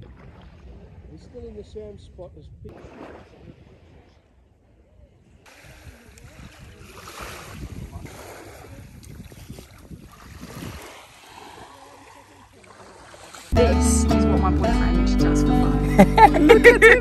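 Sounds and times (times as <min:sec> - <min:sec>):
wind buffeting microphone: 0:00.0 - 0:11.8
water washing at shore: 0:02.7 - 0:04.5, 0:05.4 - 0:13.6.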